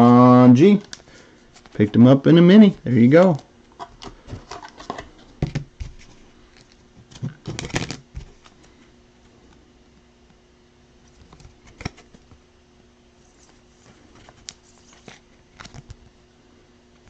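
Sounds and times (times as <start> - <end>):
plastic card sleeve clicks and rustles: 2.6 - 8.6, 11.1 - 12.4, 14.1 - 16.1.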